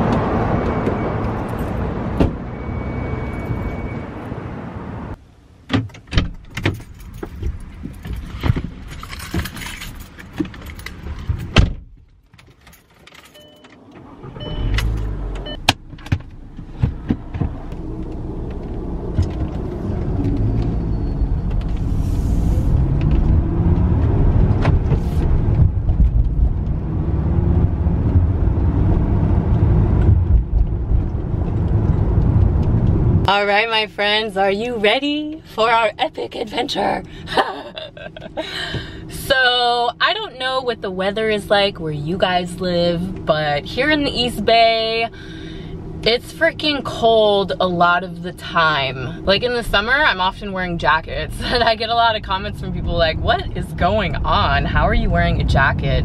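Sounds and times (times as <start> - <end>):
keys jangling: 6.5 - 11.5, 12.3 - 13.9
car engine rumble driving off: 13.4 - 33.3.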